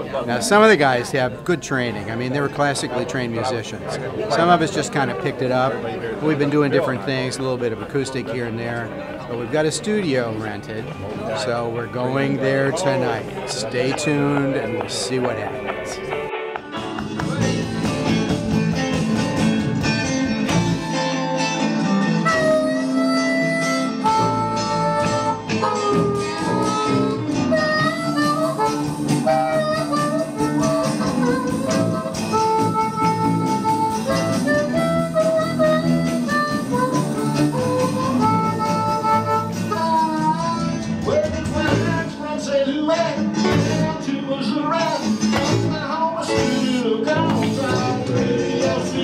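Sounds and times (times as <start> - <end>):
rock band playing live: 13.1 - 49.0.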